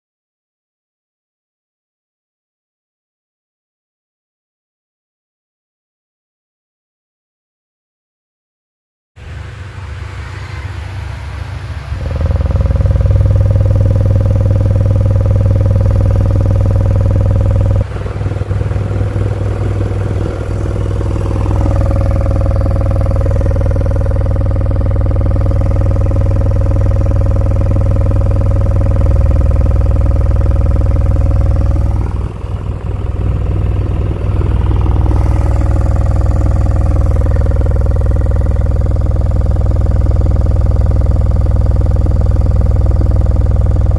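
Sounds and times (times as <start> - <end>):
subwoofer buzzing drone: 9.2 - 43.9.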